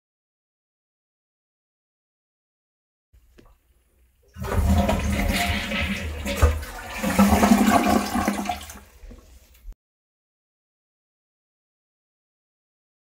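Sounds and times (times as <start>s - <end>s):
toilet flushing: 4.3s - 9.6s.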